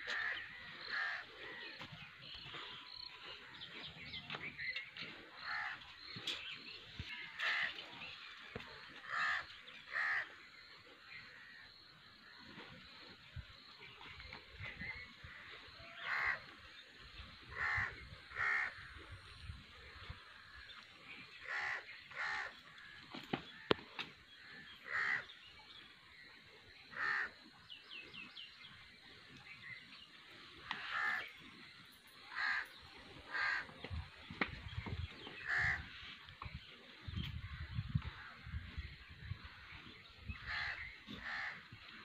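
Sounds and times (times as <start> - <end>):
crow cawing: 0.0 - 1.7, 9.0 - 10.3, 17.5 - 18.8, 21.4 - 22.5, 24.8 - 25.3, 26.9 - 27.3, 30.8 - 31.3, 32.3 - 32.7, 33.3 - 33.7, 35.4 - 35.8, 40.4 - 41.6.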